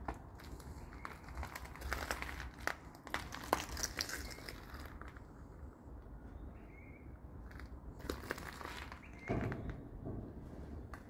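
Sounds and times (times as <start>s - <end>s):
footsteps crunching on debris: 0.0s - 5.3s, 7.5s - 9.8s.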